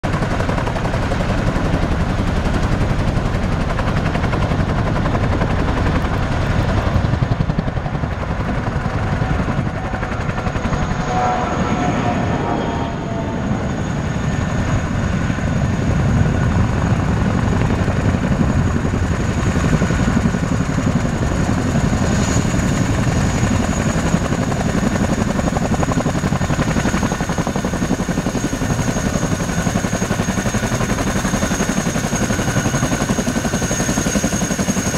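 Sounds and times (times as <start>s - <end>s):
helicopter rotors beating: 0.0s - 34.9s
high engine whine: 4.3s - 19.2s.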